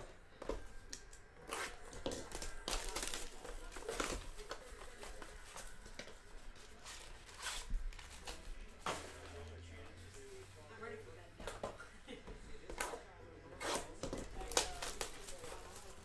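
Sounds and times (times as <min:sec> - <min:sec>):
cardboard ripping and rustling: 0:01.5 - 0:05.1.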